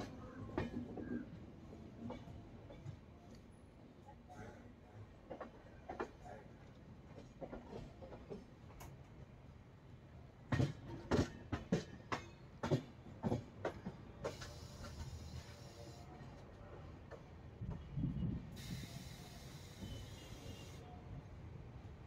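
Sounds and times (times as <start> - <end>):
train wheels clacking over rail joints: 7.1 - 9.0, 10.5 - 15.8
brief hiss: 18.5 - 20.8.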